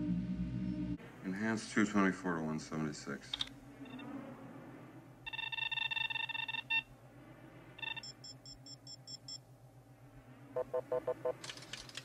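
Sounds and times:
computer beeping: 5.3s - 6.9s, 7.8s - 9.4s.

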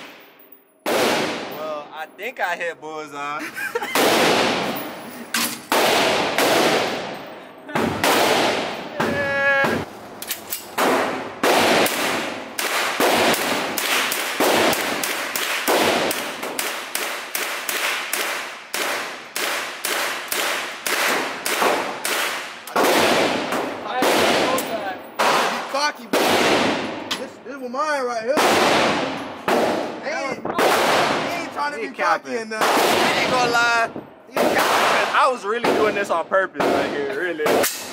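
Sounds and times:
rifle shots echoing: 0.0s - 1.6s, 4.0s - 8.9s, 10.3s - 27.1s, 28.4s - 31.6s, 32.6s - 33.8s, 34.4s - 36.0s.

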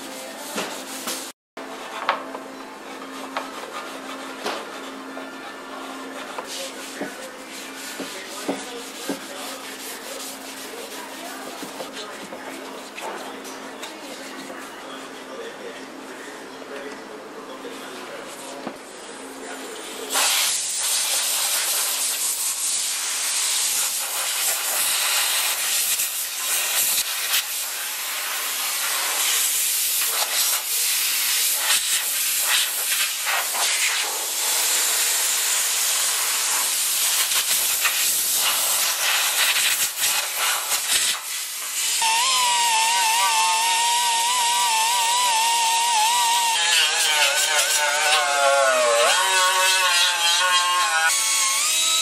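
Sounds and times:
die grinder whining: 41.8s - 52.0s.

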